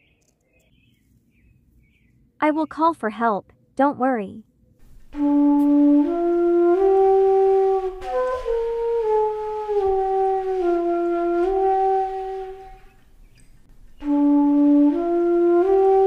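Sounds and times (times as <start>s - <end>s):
flute-like melody: 5.0s - 13.2s, 13.9s - 16.0s.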